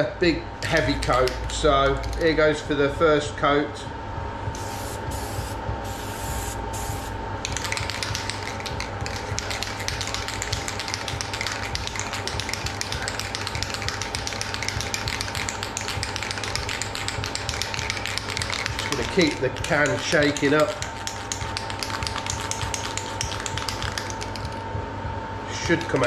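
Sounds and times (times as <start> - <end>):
aerosol can spraying: 4.6 - 24.6
spray can ball rattling: 6.0 - 24.6.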